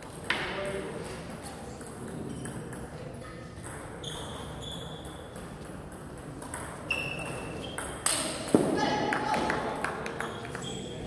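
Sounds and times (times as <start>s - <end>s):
table tennis balls ticking: 1.6s - 8.7s, 9.8s - 10.9s
short high squeak: 4.0s - 5.2s, 6.9s - 7.8s.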